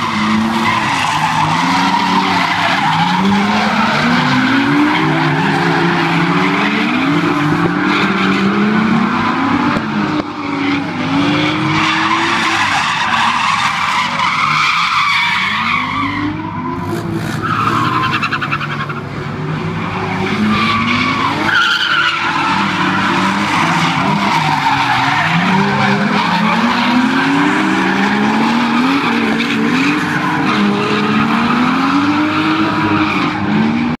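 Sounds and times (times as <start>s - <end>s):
car engines revving hard: 0.0s - 34.0s
tyres squealing: 20.4s - 33.3s.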